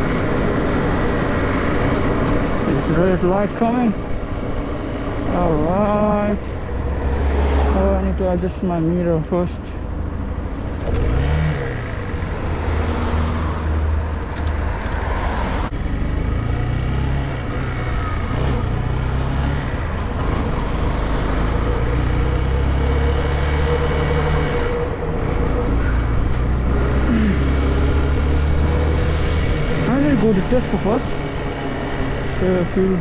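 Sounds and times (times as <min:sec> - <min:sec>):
motorcycle engine accelerating: 0:15.7 - 0:33.0.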